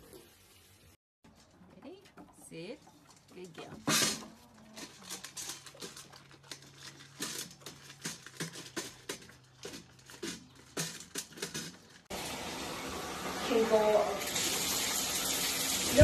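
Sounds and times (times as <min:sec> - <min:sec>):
chicken pecking metal bowl: 0:02.2 - 0:12.1
dog crunching kibble from metal bowl: 0:03.8 - 0:12.1
running water: 0:12.1 - 0:16.0.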